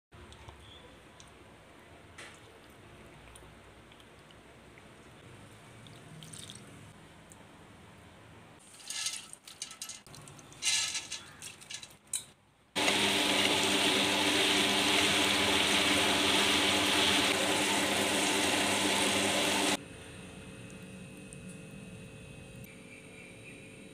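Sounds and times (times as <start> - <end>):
wet grinder motor grinding: 12.8 - 19.8.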